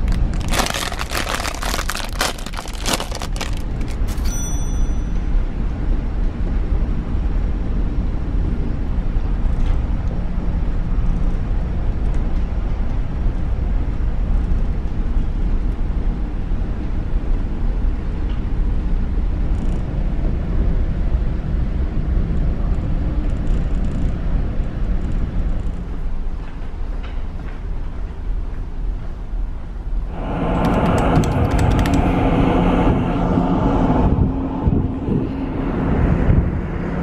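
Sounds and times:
ship engine rumble: 0.0s - 37.0s.

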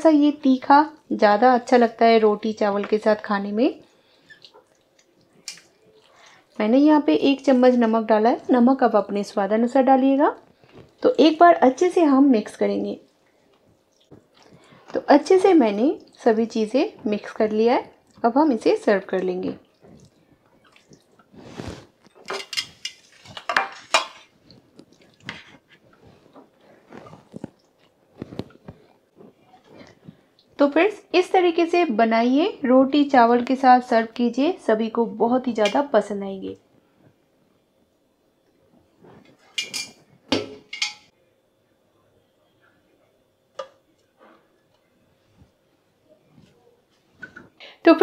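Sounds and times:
clinks of bowl and dish: 39.6s - 41.1s.

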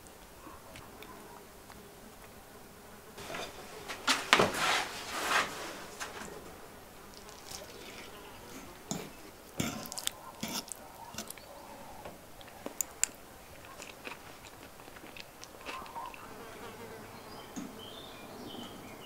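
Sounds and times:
person chewing and biting: 8.9s - 11.4s, 12.4s - 16.2s
sharp clicks and crunches: 12.4s - 16.2s.

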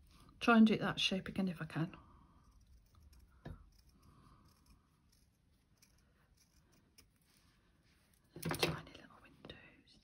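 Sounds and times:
small scissors cutting felt: 2.4s - 7.5s.

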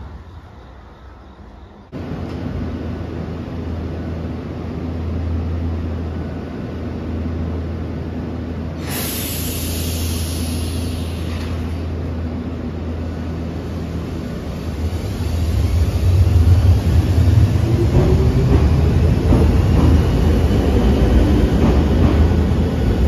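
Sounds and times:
electric train humming: 0.0s - 23.0s
compressed air hiss: 8.8s - 12.0s.

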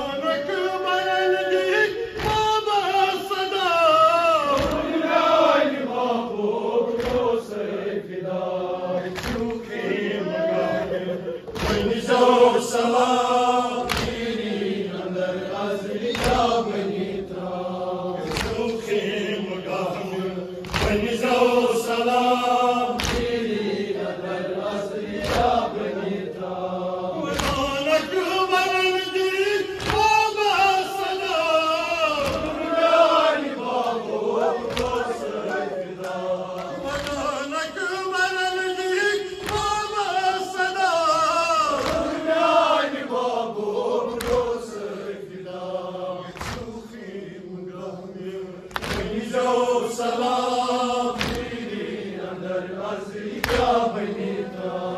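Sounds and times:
lead reciter: 0.0s - 54.9s
men chanting in unison: 0.0s - 54.9s.

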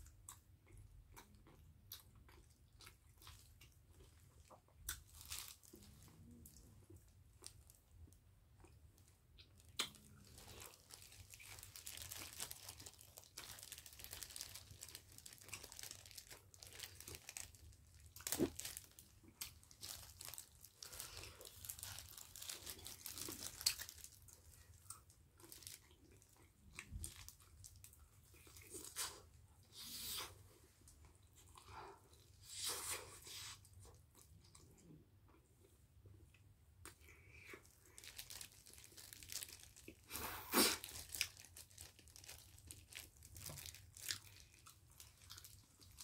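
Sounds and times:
plastic gloves crinkling: 4.9s - 6.7s, 9.0s - 29.2s, 37.6s - 46.0s.

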